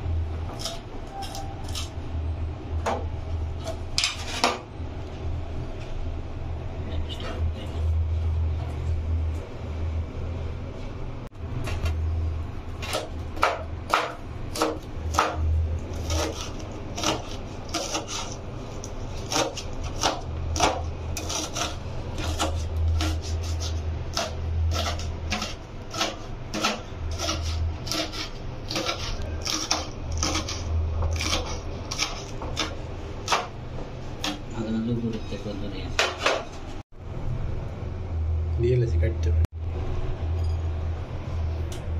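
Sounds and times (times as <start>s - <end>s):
knife chopping on wooden board: 12.8s - 18.2s, 19.2s - 33.5s.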